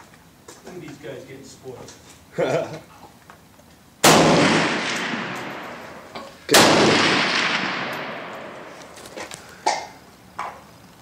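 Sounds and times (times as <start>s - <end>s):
rifle shots echoing: 4.0s - 9.0s.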